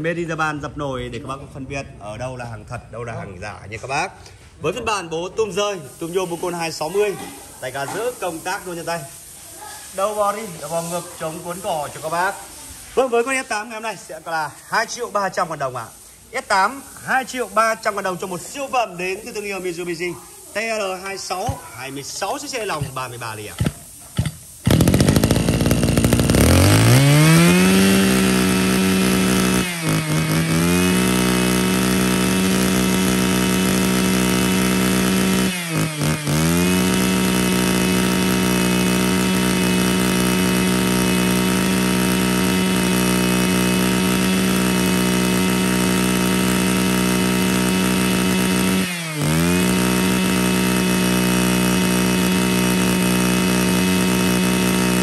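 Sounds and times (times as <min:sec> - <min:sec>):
brush cutter engine whining: 0:22.7 - 0:55.0.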